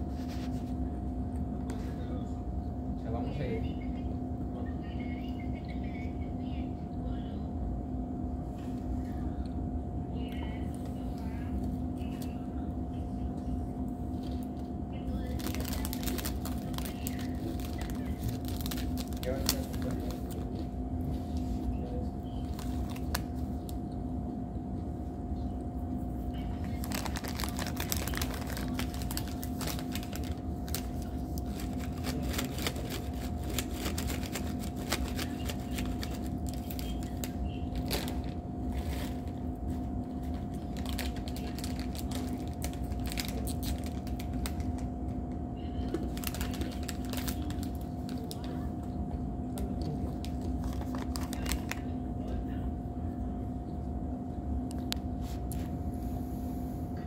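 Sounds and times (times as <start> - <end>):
steady low hum: 0.0 - 57.0
plastic snack bag crinkling: 15.2 - 20.5, 22.4 - 23.4, 26.6 - 39.4, 40.3 - 44.9, 46.0 - 48.5, 50.1 - 51.8.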